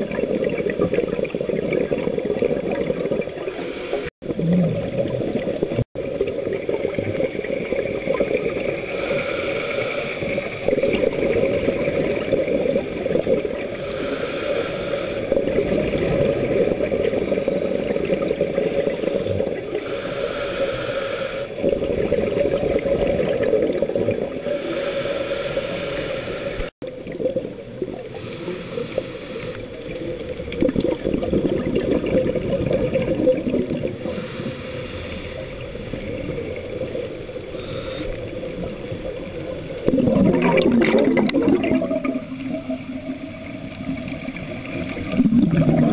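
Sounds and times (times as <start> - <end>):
diver exhaling bubbles underwater: 0.0 - 9.0, 30.4 - 34.6, 39.8 - 45.9.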